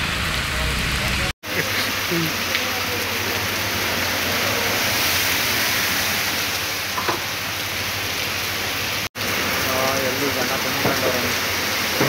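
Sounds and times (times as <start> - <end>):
car tyres swishing through water: 0.0 - 12.0
heavy rain pouring: 0.0 - 12.0.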